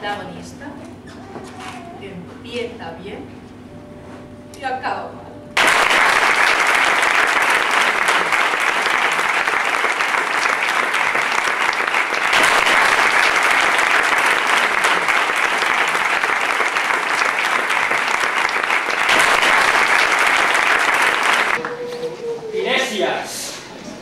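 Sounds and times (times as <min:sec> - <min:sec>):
crowd applauding: 0:05.6 - 0:22.1.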